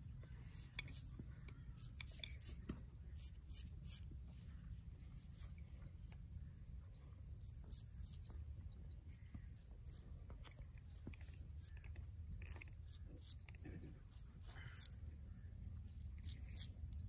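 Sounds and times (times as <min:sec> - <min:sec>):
low steady rumble: 0:00.0 - 0:17.0
razor rasping through stubble: 0:00.5 - 0:04.1, 0:07.3 - 0:08.3, 0:09.1 - 0:10.1, 0:10.7 - 0:15.0, 0:15.9 - 0:17.0.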